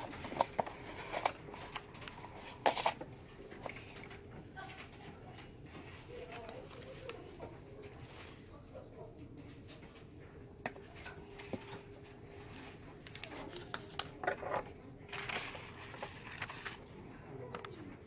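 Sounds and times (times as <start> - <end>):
plastic cups clicking and tapping: 0.0 - 8.0, 9.5 - 14.9.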